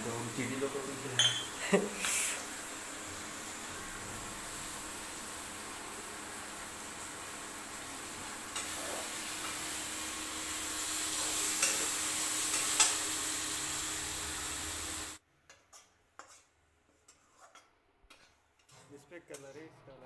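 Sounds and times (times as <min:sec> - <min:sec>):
food sizzling in a pan: 0:00.0 - 0:17.6
metal spatula clinking on pan: 0:01.2 - 0:01.5.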